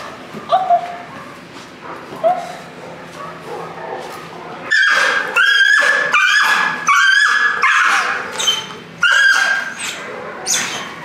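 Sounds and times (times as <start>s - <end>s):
puppy barking and yipping: 4.7s - 11.0s.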